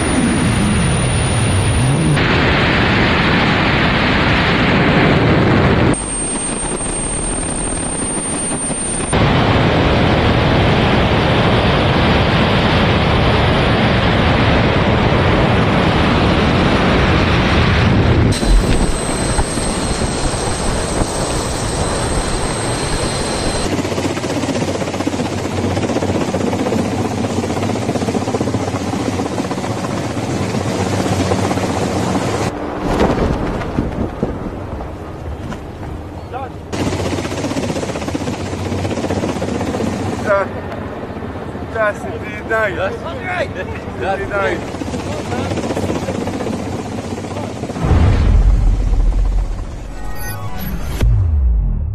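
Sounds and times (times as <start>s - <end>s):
steady high whine: 0.0s - 4.5s, 5.8s - 12.2s, 16.3s - 23.8s, 47.0s - 51.9s
rushing air and jet engine: 0.0s - 35.4s, 43.9s - 51.9s.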